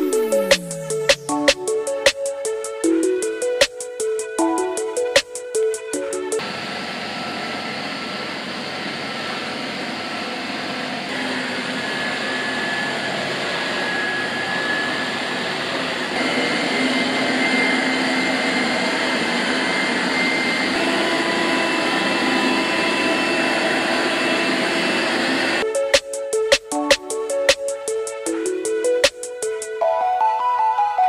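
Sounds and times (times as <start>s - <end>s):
robot vacuum fan whine: 6.4s - 25.8s.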